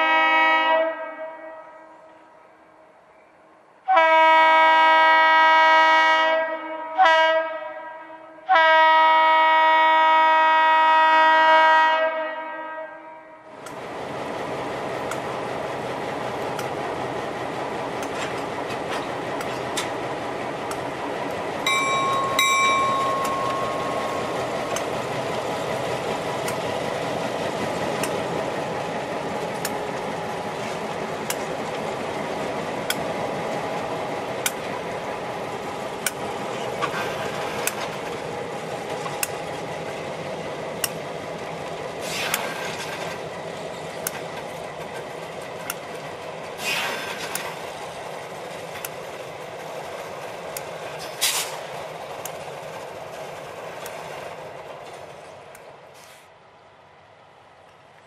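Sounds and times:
diesel locomotive engines: 0:00.0 - 0:58.0
sharp clicks: 0:34.4 - 0:34.6.

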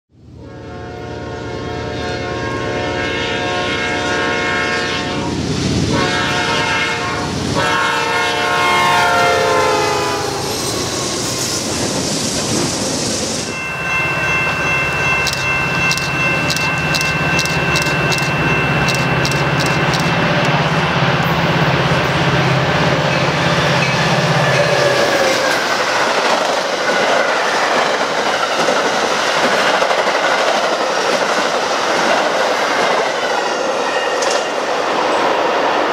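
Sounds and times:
commuter train high tones: 0:00.2 - 0:35.9
locomotive air horn blasts: 0:00.4 - 0:10.5
train wheels rushing: 0:09.7 - 0:35.9
sharp clicks on rails: 0:15.3 - 0:20.6.

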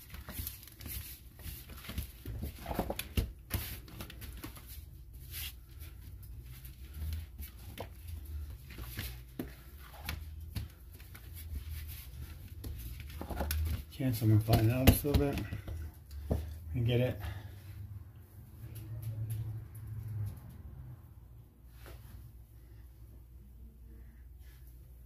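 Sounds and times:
hands kneading dough: 0:00.0 - 0:17.8.

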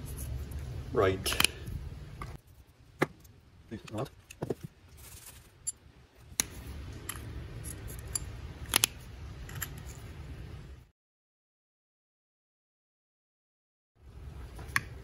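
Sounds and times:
low steady rumble: 0:00.0 - 0:10.9
clicks of small metal parts: 0:01.3 - 0:01.6, 0:06.4 - 0:10.0.

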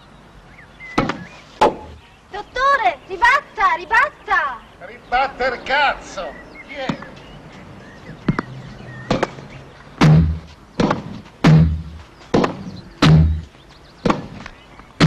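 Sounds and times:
tennis ball hit by rackets: 0:01.0 - 0:02.0, 0:09.1 - 0:09.4, 0:10.0 - 0:13.4.

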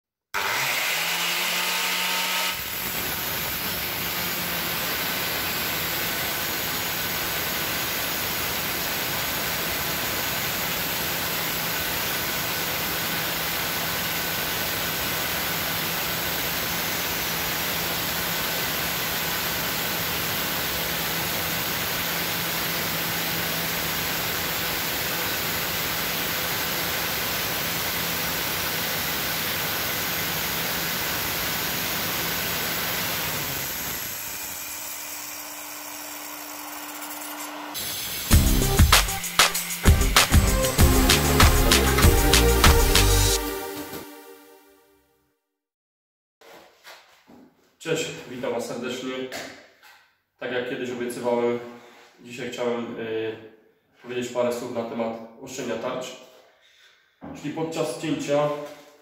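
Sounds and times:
saw cutting tile: 0:00.3 - 0:43.4
saw motor whine and hum: 0:00.4 - 0:43.9.

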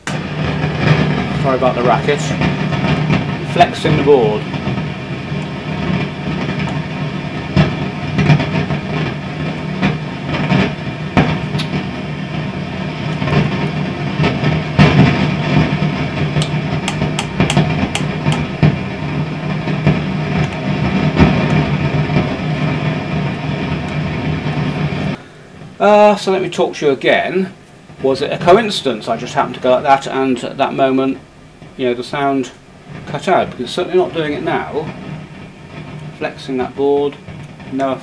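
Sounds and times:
sharp clicks and crackles: 0:00.0 - 0:25.1
amplifier roaring with hum: 0:00.0 - 0:38.0.

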